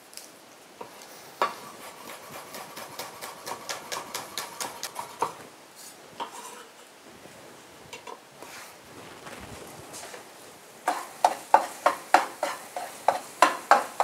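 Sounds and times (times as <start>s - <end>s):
knife chopping on wooden board: 1.4s - 5.4s.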